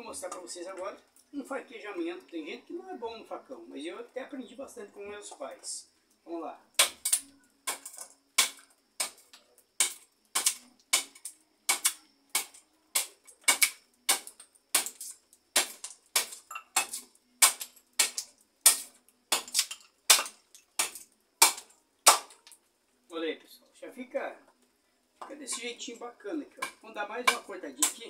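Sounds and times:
machete chopping wood: 0:06.8 - 0:22.4, 0:26.6 - 0:28.0.

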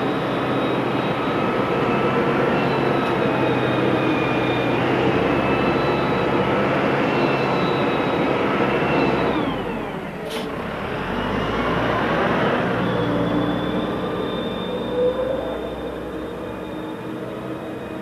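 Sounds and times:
diesel engine with mechanical whine: 0:00.0 - 0:18.0.

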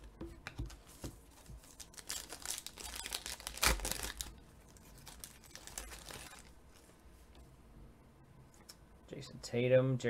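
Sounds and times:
foil wrapper tearing and crinkling: 0:01.6 - 0:06.5.

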